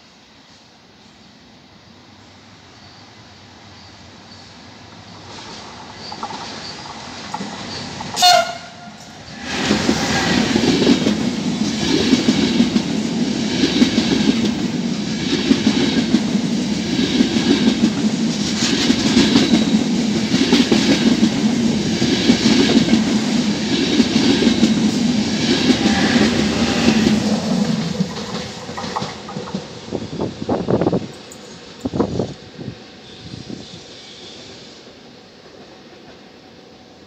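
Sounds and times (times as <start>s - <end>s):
train wheels clickety-clack on rails: 4.3s - 36.5s
locomotive horn blast: 8.2s - 9.1s.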